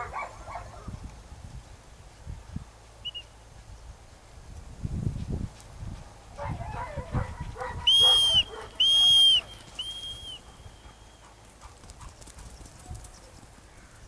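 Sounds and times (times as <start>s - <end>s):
dog whistle blasts: 7.8s - 11.2s.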